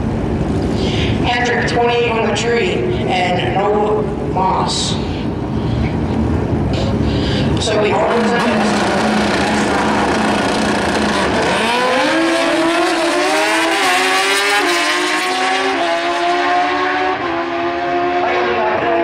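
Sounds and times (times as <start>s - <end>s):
motorcycle engines revving: 5.3s - 19.0s.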